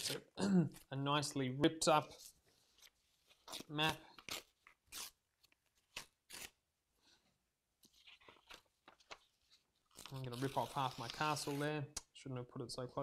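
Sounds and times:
paper tearing: 3.4s - 5.2s, 5.8s - 6.6s, 9.9s - 11.8s.

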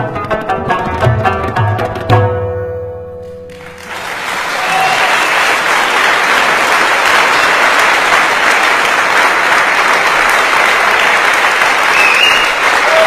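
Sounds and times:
crowd applause: 3.5s - 13.0s.

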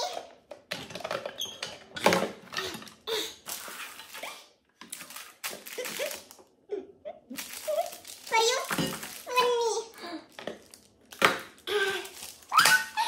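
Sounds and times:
plastic wrappers crinkling: 3.4s - 6.5s, 7.3s - 13.0s.

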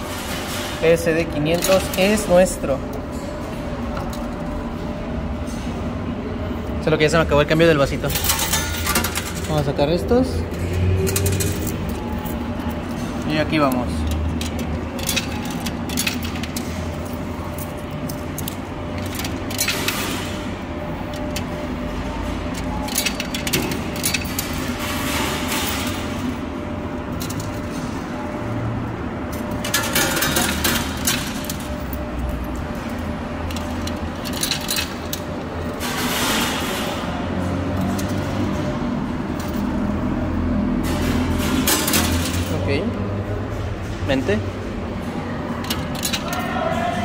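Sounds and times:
steady arcade hum: 0.0s - 47.0s
coins clicking and clinking: 7.7s - 9.7s, 10.5s - 20.5s, 21.1s - 26.4s, 27.1s - 28.0s, 29.3s - 42.6s, 45.6s - 46.6s.

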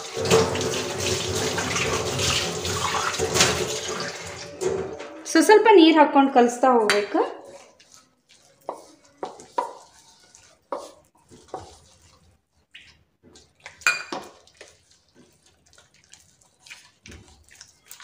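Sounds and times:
fingers squishing wet batter: 7.5s - 18.0s.

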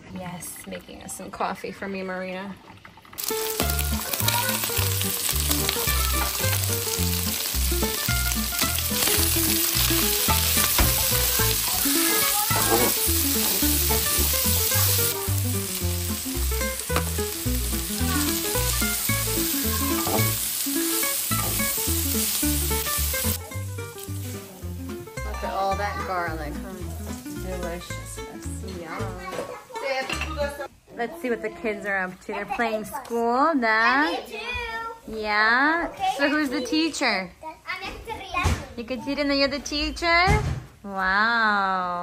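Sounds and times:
food sizzling in frying pan: 1.3s - 30.6s.

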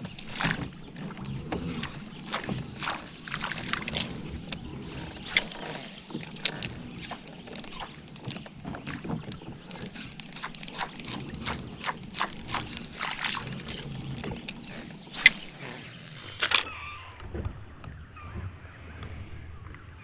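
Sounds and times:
light knocks and clicks from boat: 0.0s - 15.2s
water lapping against kayak hull: 0.0s - 16.6s.

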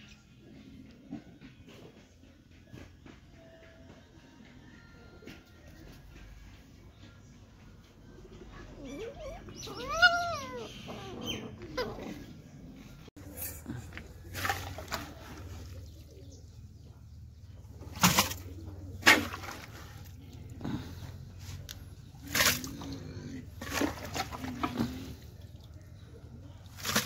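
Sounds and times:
puppy whining: 8.3s - 13.1s.

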